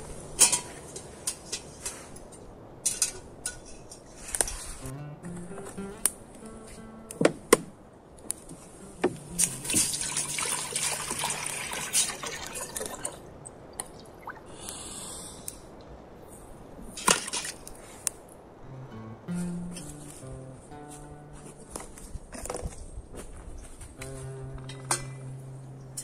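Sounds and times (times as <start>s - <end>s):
water pouring into metal pot: 9.6s - 13.2s.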